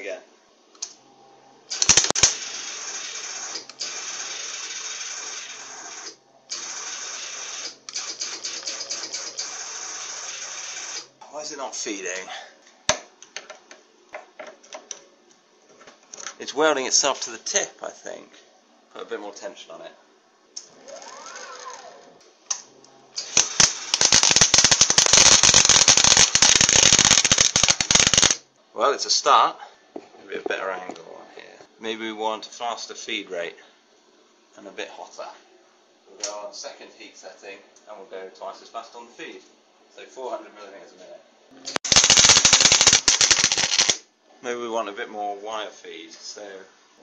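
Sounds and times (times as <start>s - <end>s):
welding arc hissing and crackling: 1.7s - 11.1s, 23.2s - 28.4s, 41.8s - 44.0s.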